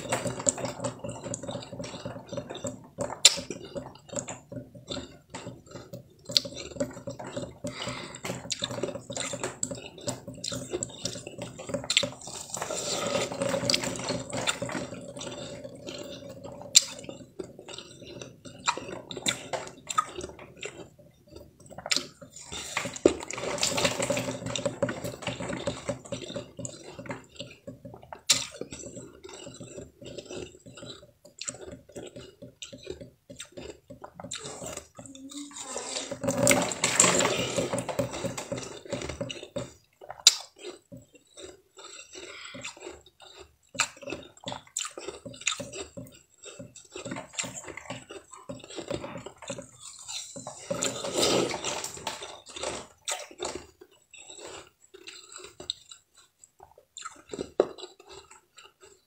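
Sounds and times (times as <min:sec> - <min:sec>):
ice being chewed: 0:00.0 - 0:59.0.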